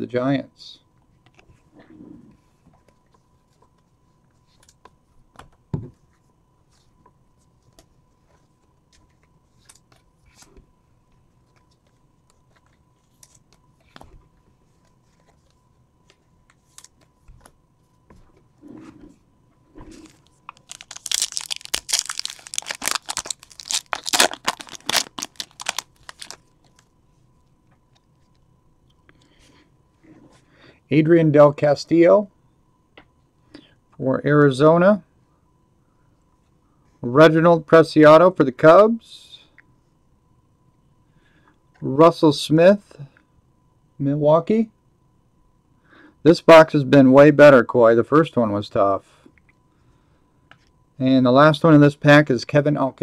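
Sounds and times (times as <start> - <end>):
foil wrapper tearing and crinkling: 20.5 - 26.4.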